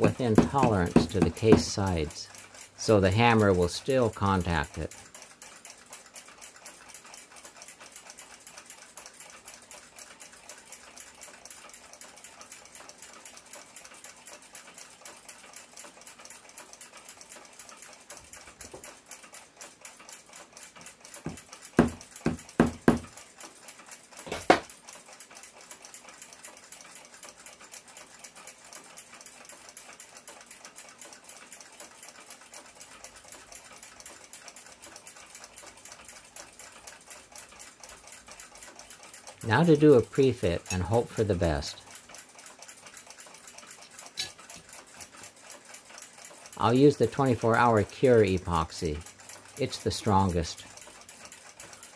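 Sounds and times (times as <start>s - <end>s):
small hammer tapping metal rod: 0.0s - 1.8s, 21.2s - 23.1s, 24.3s - 24.7s
faint rapid ticking: 0.0s - 51.9s.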